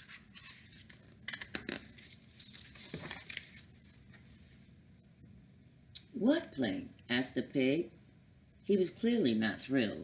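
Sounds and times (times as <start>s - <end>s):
book handling: 0.0s - 4.6s
book page turning: 0.0s - 4.7s.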